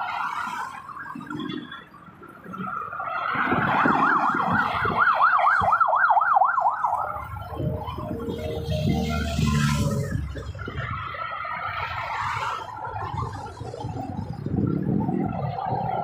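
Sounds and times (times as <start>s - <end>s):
emergency siren yelping: 0.0s - 16.0s
expressway traffic rushing: 0.0s - 16.0s.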